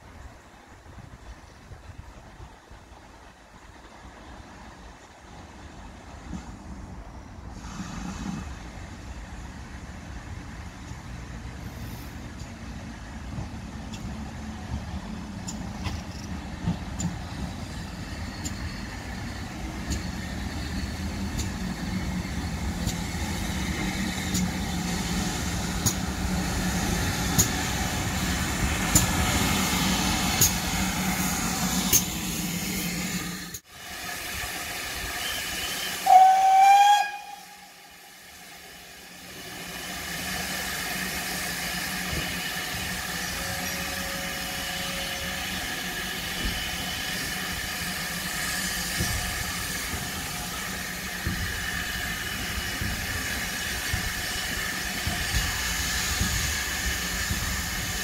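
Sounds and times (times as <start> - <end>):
steam locomotive rumble and hiss: 0.0 - 58.0
wheels clicking over rail joints: 13.2 - 18.7, 28.6 - 29.3
steam whistle: 35.0 - 38.4.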